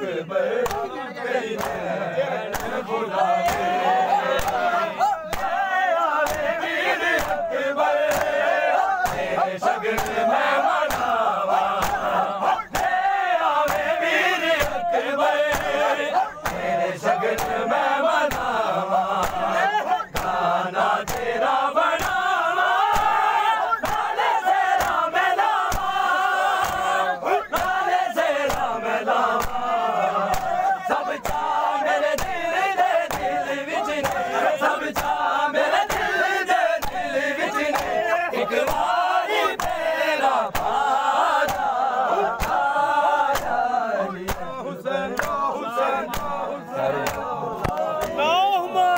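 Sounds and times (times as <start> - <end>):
men chanting in unison: 0.0 - 48.9
hand slaps on chest: 0.6 - 0.9, 1.6 - 1.8, 2.5 - 2.8, 3.4 - 3.7, 4.4 - 4.6, 5.3 - 5.6, 6.2 - 6.5, 7.2 - 7.5, 8.1 - 8.4, 9.0 - 9.3, 10.0 - 10.2, 10.9 - 11.2, 11.8 - 12.1, 12.7 - 13.0, 13.7 - 13.9, 14.6 - 14.9, 15.5 - 16.7, 17.4 - 17.6, 18.3 - 18.5, 19.2 - 19.5, 20.1 - 20.4, 21.0 - 21.3, 22.0 - 22.2, 22.9 - 23.2, 23.8 - 24.1, 24.8 - 25.0, 25.7 - 26.0, 26.6 - 26.9, 27.5 - 27.8, 28.5 - 28.8, 29.4 - 29.6, 30.3 - 30.6, 31.2 - 31.5, 32.2 - 32.4, 33.1 - 33.4, 34.0 - 34.3, 34.9 - 35.3, 35.9 - 36.1, 36.8 - 37.1, 37.7 - 38.0, 38.7 - 38.9, 39.6 - 39.8, 40.5 - 40.8, 41.4 - 41.8, 42.4 - 42.6, 43.3 - 43.6, 44.3 - 44.6, 45.2 - 45.4, 46.0 - 46.4, 47.0 - 48.2.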